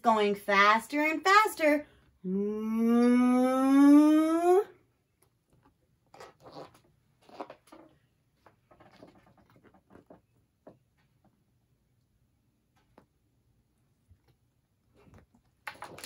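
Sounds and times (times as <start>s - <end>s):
book pages rustling: 5.5s - 10.8s.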